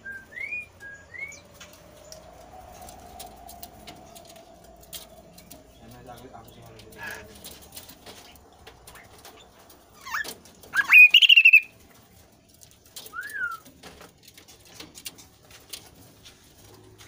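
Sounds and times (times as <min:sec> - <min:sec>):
bird calling: 0:00.0 - 0:11.8, 0:13.0 - 0:13.7.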